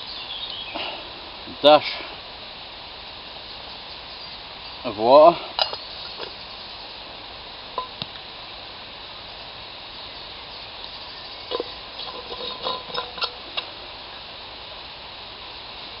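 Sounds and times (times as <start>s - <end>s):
pot simmering and sizzling: 0.0s - 16.0s
metal flask clinking: 11.5s - 13.4s.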